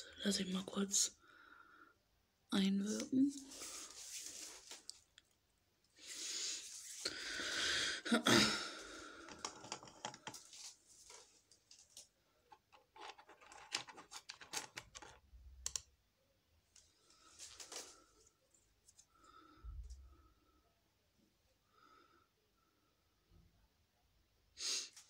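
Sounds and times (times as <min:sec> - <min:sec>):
rustling and handling: 0:03.1 - 0:05.4, 0:09.2 - 0:15.8, 0:16.7 - 0:19.2
small objects clicking and tapping: 0:09.2 - 0:10.5, 0:12.5 - 0:15.9.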